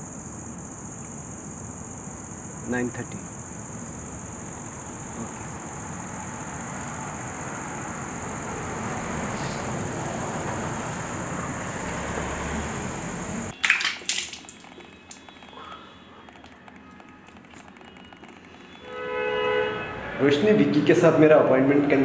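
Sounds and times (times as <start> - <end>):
high insect trill: 0.0 - 20.5
water splashes: 13.5 - 16.0.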